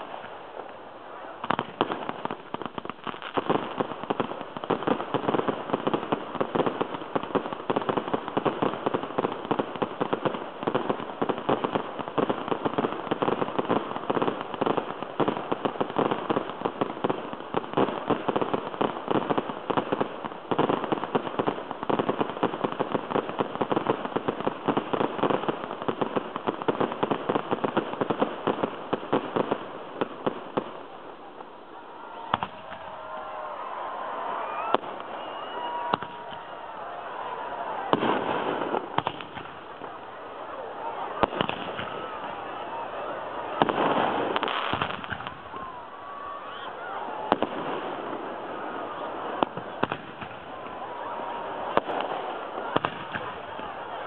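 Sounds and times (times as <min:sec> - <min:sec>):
crowd voices: 0:00.0 - 0:54.0
firework bangs: 0:00.0 - 0:54.0
fireworks crackling and popping: 0:00.0 - 0:54.0.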